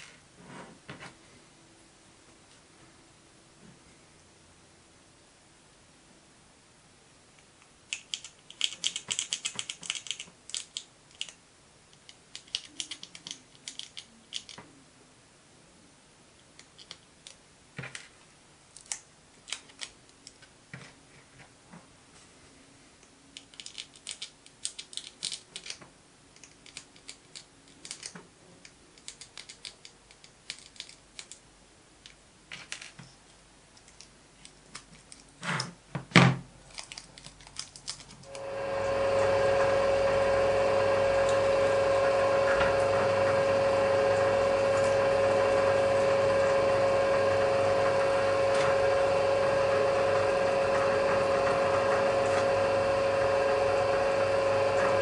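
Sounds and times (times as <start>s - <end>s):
plastic parts clicking and tapping: 7.9s - 14.7s, 16.5s - 20.9s, 23.4s - 31.4s, 32.0s - 33.1s, 36.0s - 38.3s
drill press humming: 38.3s - 55.0s.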